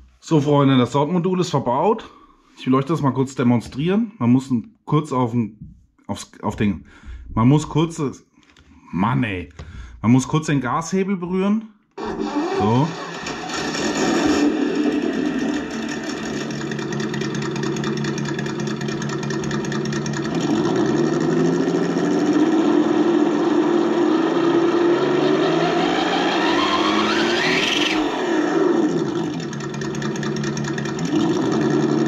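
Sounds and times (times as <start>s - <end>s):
simulated engine idling and revving: 12.0s - 32.0s.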